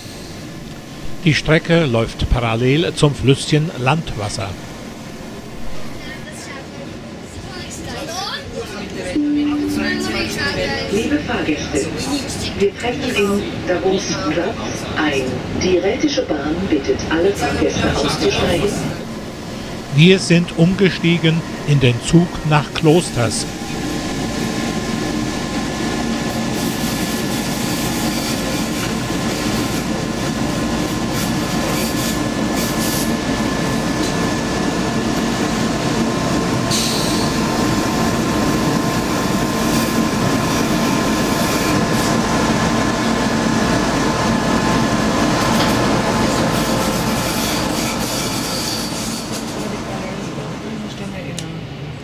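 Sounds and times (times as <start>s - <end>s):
train wheels rumbling on rail: 11.2s - 52.0s.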